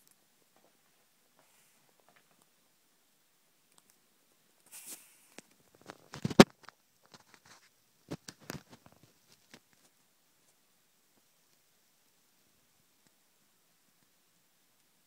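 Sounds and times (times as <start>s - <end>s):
soft rustle: 0.0s - 2.6s, 4.6s - 11.7s.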